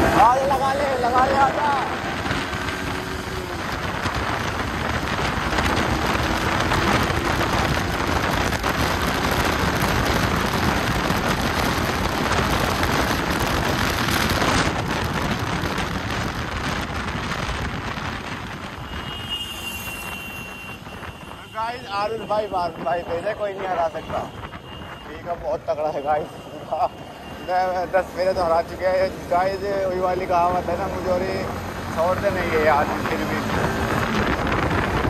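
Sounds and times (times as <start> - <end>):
motorcycle engine: 0.0 - 21.6
wind rushing over microphone: 0.0 - 25.7, 30.5 - 35.0.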